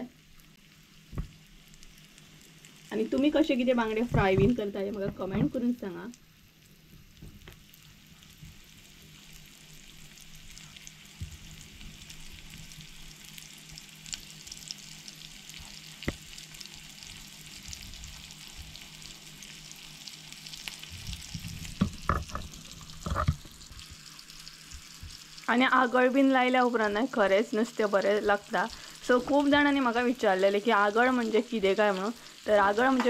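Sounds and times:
fish sizzling in a frying pan: 0.0 - 33.0
knocks: 21.8 - 22.5.

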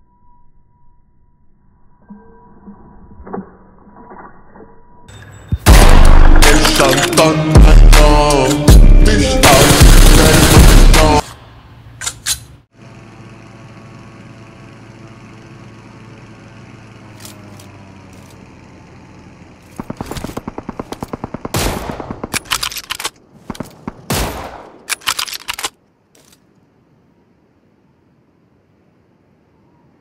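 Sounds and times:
game automatic gunfire: 9.4 - 11.2, 19.8 - 22.9.

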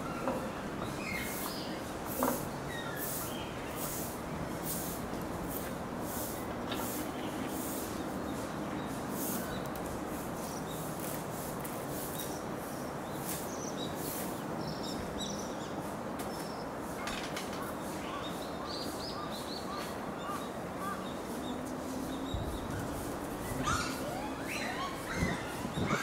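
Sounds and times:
high animal calls: 22.8 - 26.0.

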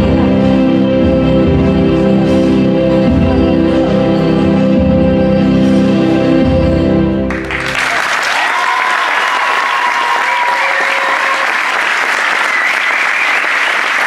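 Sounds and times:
floor music: 0.0 - 10.6
crowd applauding: 7.3 - 14.0
crowd cheering shouts: 7.6 - 14.0.

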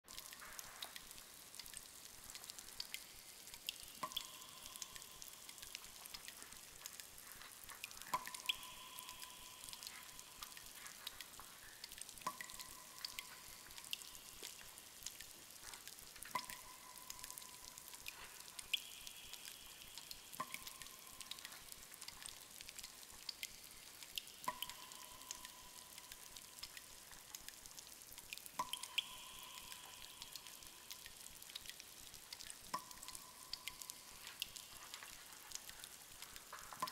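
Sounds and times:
water dripping in cave: 0.0 - 36.9.

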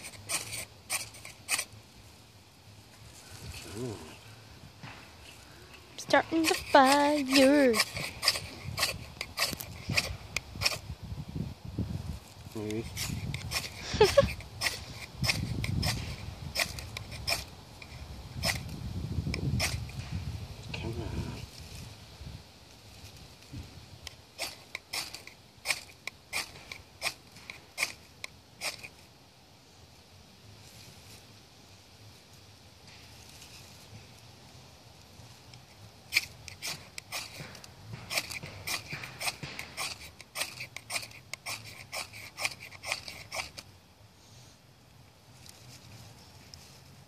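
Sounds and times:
knife scraping ferro rod: 0.0 - 1.7, 6.1 - 10.8, 12.8 - 18.6, 19.4 - 19.9, 24.4 - 28.0, 28.6 - 29.0, 36.1 - 43.6.

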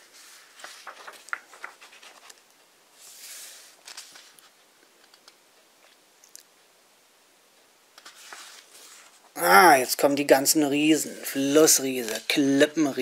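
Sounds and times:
book pages rustling: 0.0 - 6.0, 8.0 - 9.3, 11.9 - 12.5
page swishing over: 0.1 - 2.4, 3.0 - 4.5, 8.0 - 9.2.

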